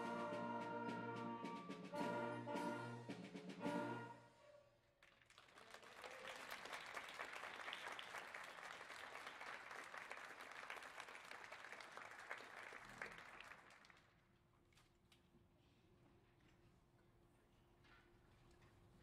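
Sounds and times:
audience applauding: 5.0 - 14.1.

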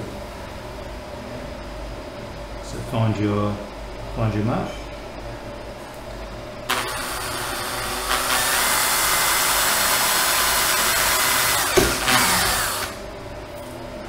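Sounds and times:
cordless drill whine: 6.7 - 13.0
knock: 11.8 - 12.0.

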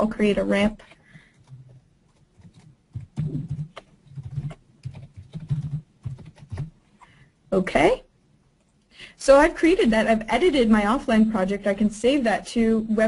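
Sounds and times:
computer keyboard typing: 0.7 - 6.8.

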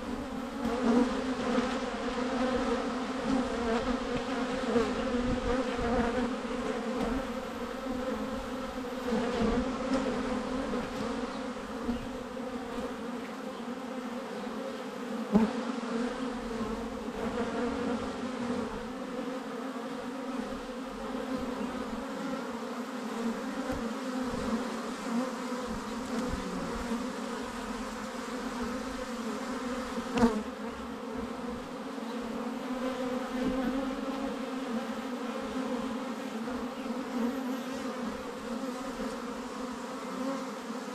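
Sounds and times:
bees buzzing: 0.0 - 40.9.

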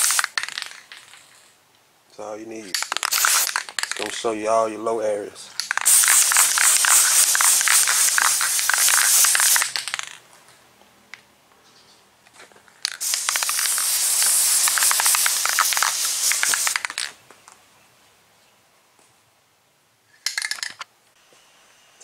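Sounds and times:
spray paint can hissing: 0.0 - 0.8, 2.7 - 4.0, 5.6 - 10.2, 12.9 - 17.1.

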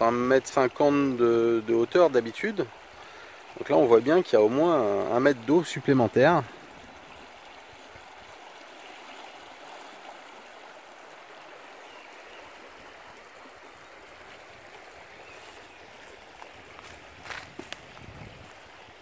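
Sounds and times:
river rushing in flood: 0.0 - 19.0.

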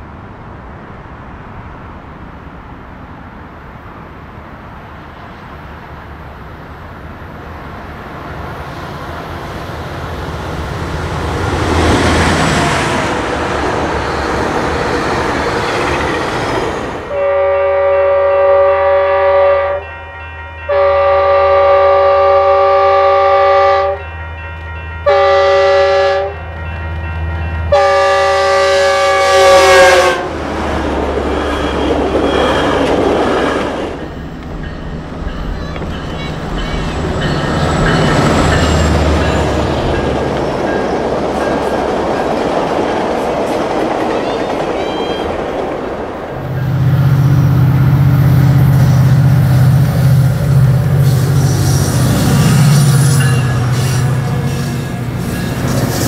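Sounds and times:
approaching train rumble: 0.0 - 56.0
locomotive air horn blasts: 17.1 - 27.0, 27.7 - 30.4, 50.9 - 55.8.

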